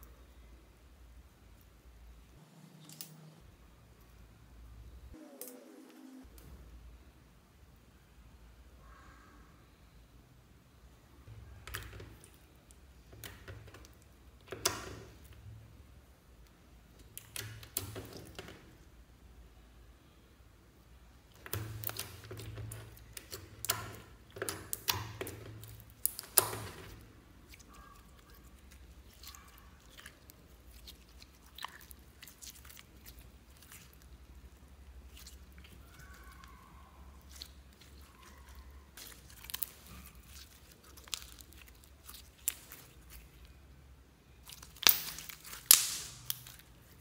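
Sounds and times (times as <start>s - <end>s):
slime squelching: 11.3s - 18.9s, 20.8s - 47.0s
slime crackling and popping: 16.9s - 18.6s, 21.3s - 43.6s, 44.2s - 47.0s.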